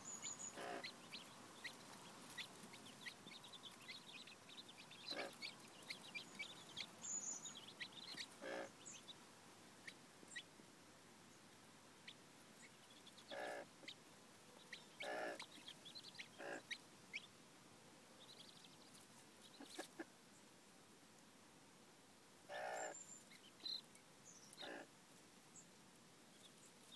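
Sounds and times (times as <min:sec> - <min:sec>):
chicks peeping: 0:00.0 - 0:09.2, 0:12.0 - 0:14.0, 0:14.6 - 0:17.3, 0:18.2 - 0:20.1
hen clucking: 0:00.4 - 0:06.9, 0:07.6 - 0:08.8, 0:13.2 - 0:14.0, 0:14.9 - 0:16.8.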